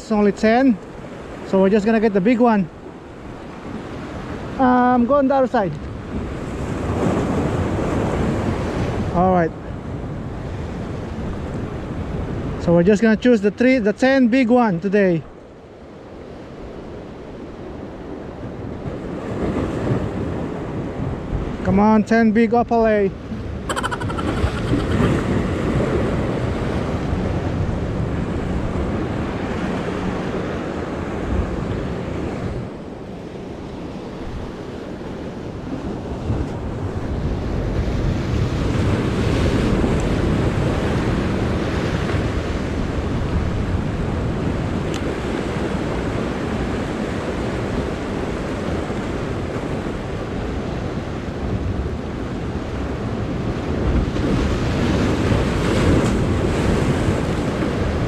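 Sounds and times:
wind buffeting microphone: 0:23.2 - 0:32.9.

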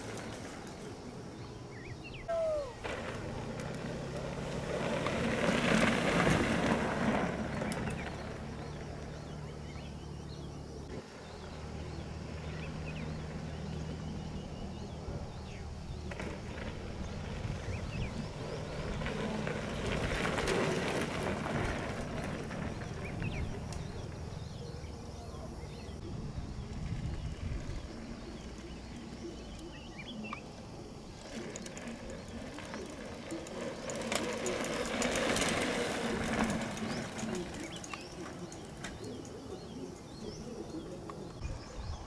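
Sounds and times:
low engine hum: 0:00.0 - 0:42.0.

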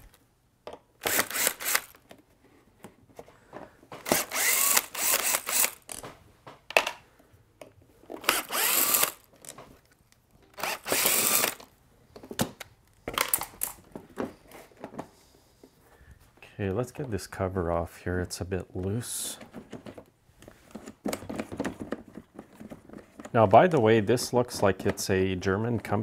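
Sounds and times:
cordless drill spinning: 0:01.0 - 0:02.0, 0:04.0 - 0:06.0, 0:08.2 - 0:09.3, 0:10.5 - 0:11.7
clicks of screws and plastic: 0:07.6 - 0:15.1.

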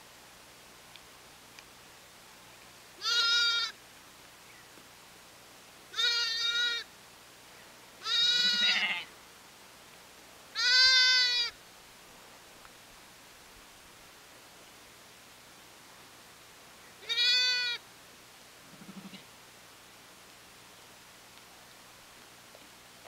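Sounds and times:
sheep bleating: 0:03.0 - 0:03.8, 0:05.9 - 0:06.8, 0:08.0 - 0:09.1, 0:10.6 - 0:11.5, 0:17.0 - 0:17.8.

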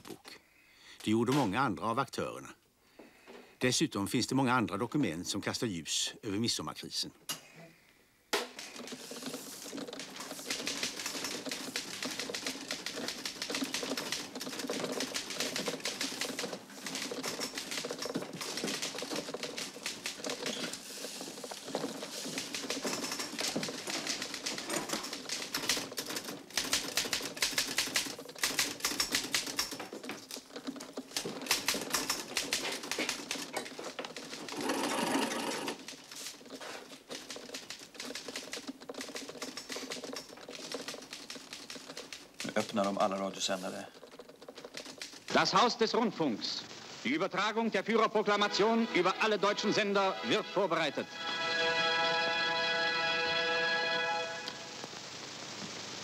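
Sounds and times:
teleprinter clattering: 0:08.4 - 0:45.8.

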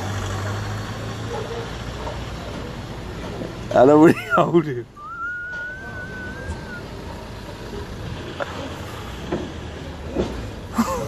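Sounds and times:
street traffic rumble: 0:00.0 - 0:11.0
long thin whistle: 0:05.0 - 0:06.8.

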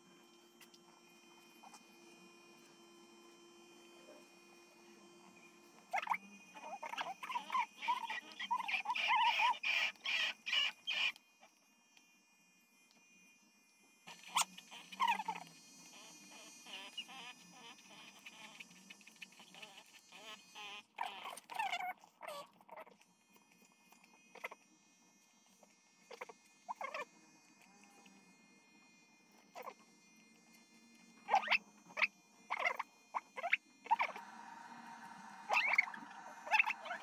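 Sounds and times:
electric pet clipper humming: 0:00.0 - 0:37.0
small dog whining: 0:05.9 - 0:11.1, 0:14.1 - 0:23.0, 0:26.1 - 0:27.1, 0:29.6 - 0:29.8, 0:31.2 - 0:37.0.

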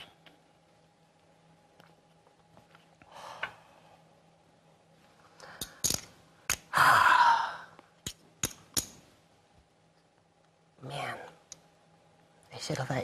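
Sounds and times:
soft breath: 0:03.0 - 0:04.3
person sighing heavily: 0:06.7 - 0:07.8.

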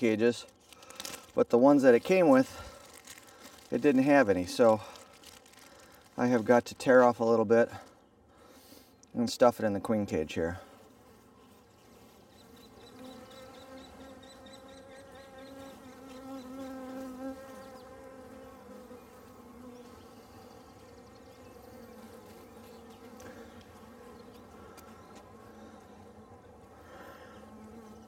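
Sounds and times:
bees buzzing: 0:10.6 - 0:28.0.

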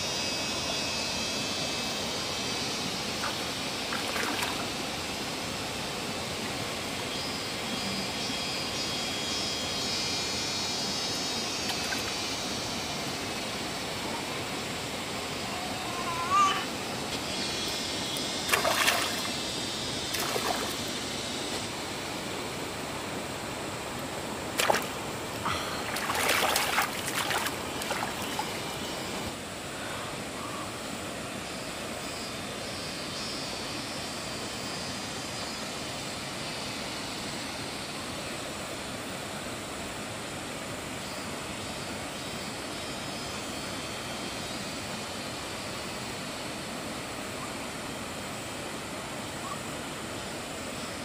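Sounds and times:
shallow water splashing: 0:18.5 - 0:19.3, 0:20.1 - 0:20.8, 0:24.6 - 0:28.7
water trickling: 0:24.6 - 0:29.2.

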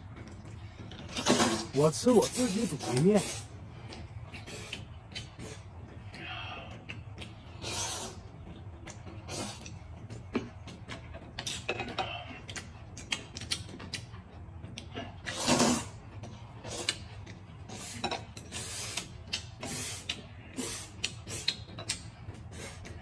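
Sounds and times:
noodles being slurped: 0:01.1 - 0:03.6, 0:15.0 - 0:23.0
wet mouth clicks and smacks: 0:12.4 - 0:14.9, 0:16.7 - 0:17.4, 0:18.9 - 0:23.0.

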